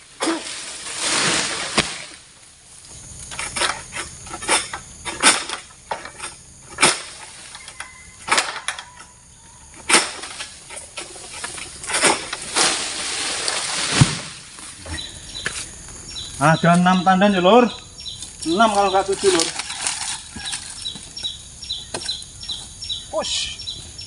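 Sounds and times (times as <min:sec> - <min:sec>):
blade striking palm fronds: 0:00.0 - 0:02.4, 0:03.3 - 0:08.7, 0:09.8 - 0:14.8, 0:18.2 - 0:21.1
fronds rustling: 0:00.0 - 0:08.7, 0:09.7 - 0:24.0.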